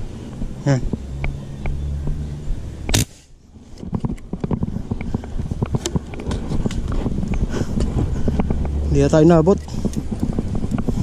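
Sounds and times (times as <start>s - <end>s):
gun handling clicks: 2.9s - 3.2s
airgun shot: 2.9s - 3.3s.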